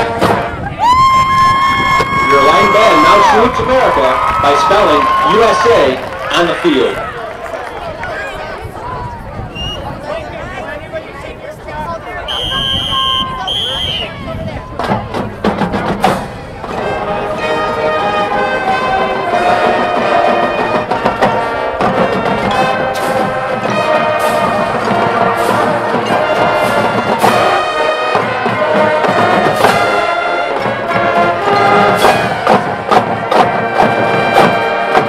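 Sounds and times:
brass chords: 0:00.0 - 0:00.8, 0:16.0 - 0:35.0
drumline hits: 0:00.0 - 0:07.0, 0:12.4 - 0:35.0
marching band playing: 0:00.0 - 0:07.1, 0:12.3 - 0:35.0.

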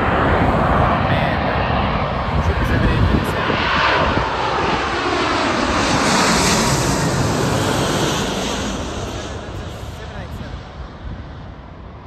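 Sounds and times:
jet engines passing overhead: 0:00.0 - 0:12.0.

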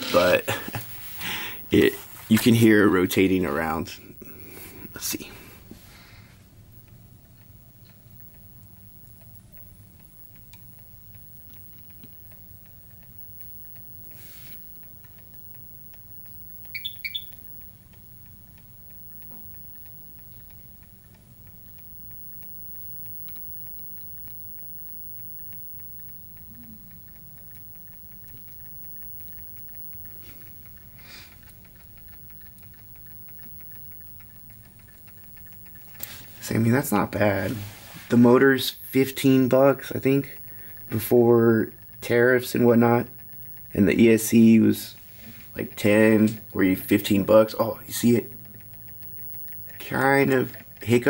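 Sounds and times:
rapid even ticking: 0:00.0 - 0:51.0
sharp clicks: 0:06.9 - 0:37.4, 0:38.4 - 0:51.0.

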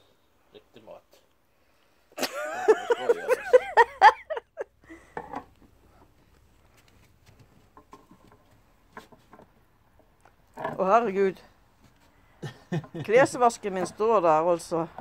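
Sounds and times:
light clicks and knocks: 0:05.2 - 0:10.4.

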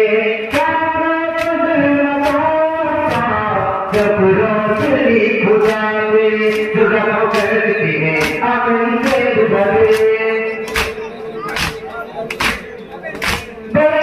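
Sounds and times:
man chanting: 0:02.2 - 0:14.0
hands slapping chests: 0:05.6 - 0:07.6, 0:08.2 - 0:08.4, 0:09.0 - 0:13.7.

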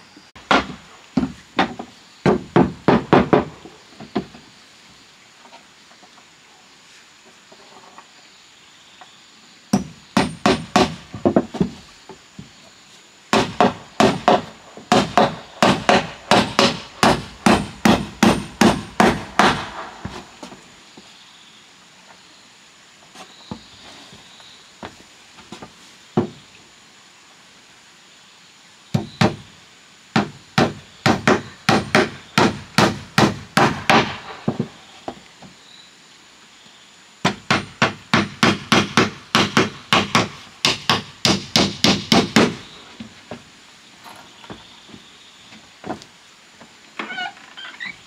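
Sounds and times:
hammer strikes: 0:09.8 - 0:11.0, 0:13.4 - 0:20.2.

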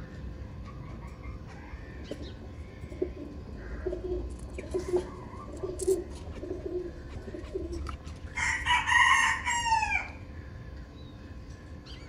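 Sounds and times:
pigeons cooing: 0:00.6 - 0:10.5
rooster crowing: 0:08.3 - 0:10.2.

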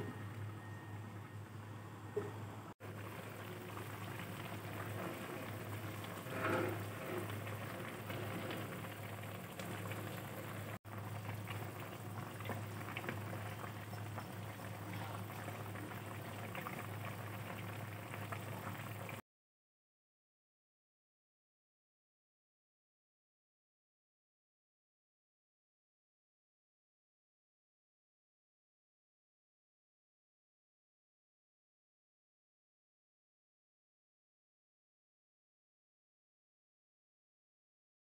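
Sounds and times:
low hum: 0:00.0 - 0:11.6
soup boiling and bubbling: 0:02.2 - 0:19.2.

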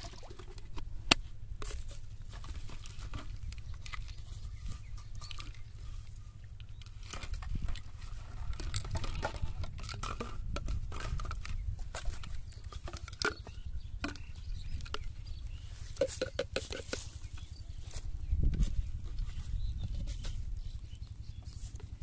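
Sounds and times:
plastic bottles clicking and crinkling: 0:06.7 - 0:17.5
steady low rumble: 0:17.1 - 0:22.0.

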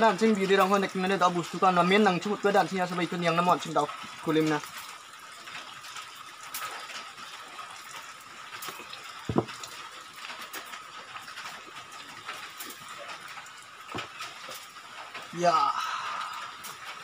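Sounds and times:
thump: 0:09.3 - 0:09.6.

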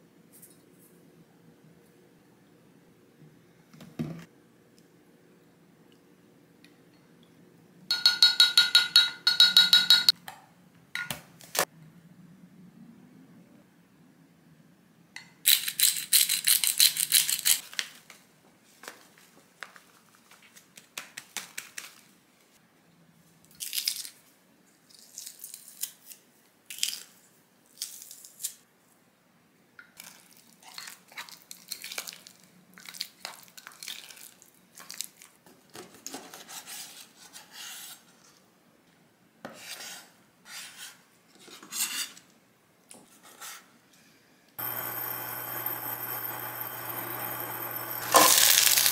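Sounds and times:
spoons clinking against glass: 0:07.9 - 0:10.1
garlic press squeezing: 0:44.6 - 0:48.9.

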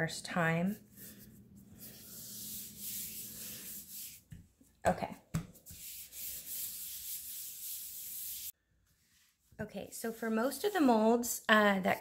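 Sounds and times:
gloved hand rubbing fondant: 0:00.7 - 0:04.7, 0:05.4 - 0:10.9.

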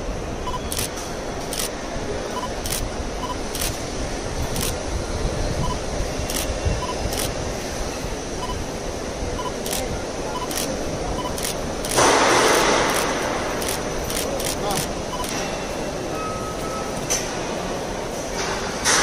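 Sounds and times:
short faint beeps: 0:00.4 - 0:00.9, 0:02.3 - 0:03.7, 0:05.6 - 0:07.3, 0:08.4 - 0:08.6, 0:09.3 - 0:15.4, 0:16.0 - 0:17.2
camera shutters clicking: 0:00.6 - 0:01.7, 0:02.6 - 0:02.8, 0:03.4 - 0:03.8, 0:04.5 - 0:04.8, 0:06.3 - 0:07.4, 0:09.6 - 0:10.7, 0:11.3 - 0:15.4.

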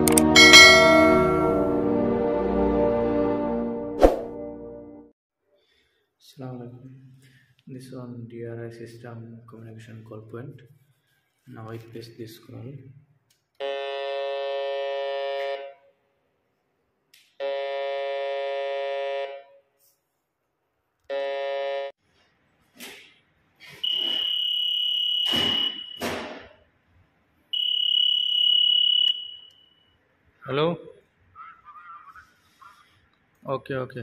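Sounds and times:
buzzing call tone: 0:23.8 - 0:26.0, 0:27.6 - 0:29.8
high steady electronic beep: 0:23.8 - 0:26.0, 0:27.6 - 0:30.0.

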